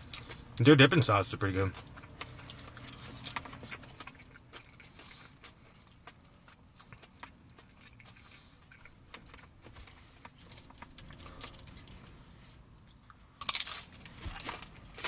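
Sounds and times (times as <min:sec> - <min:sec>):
wet chewing: 0:01.6 - 0:12.1.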